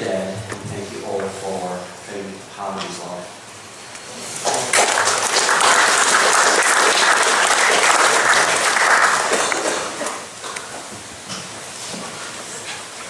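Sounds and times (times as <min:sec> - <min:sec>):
audience applauding: 0:04.4 - 0:10.6.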